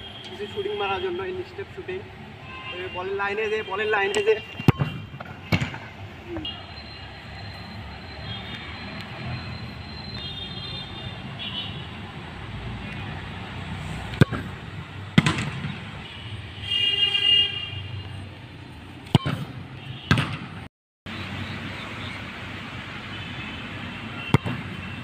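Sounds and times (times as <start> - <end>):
vehicle horn toot: 2.4 - 4.9, 16.0 - 17.9
football kicked with bare foot: 19.1 - 20.5.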